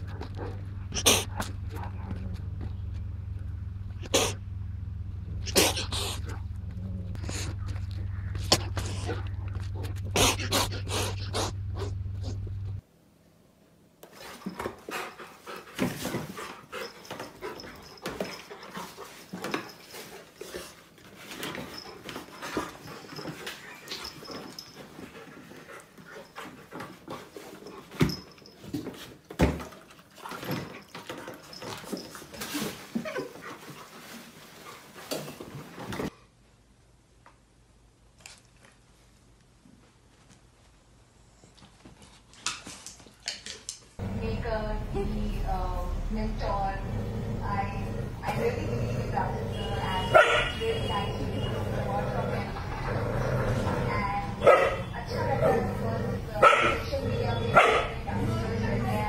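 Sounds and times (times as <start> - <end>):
dog vocalizing: 0.9 - 2.1, 5.4 - 12.5
dog panting: 7.1 - 12.5, 14.5 - 20.7.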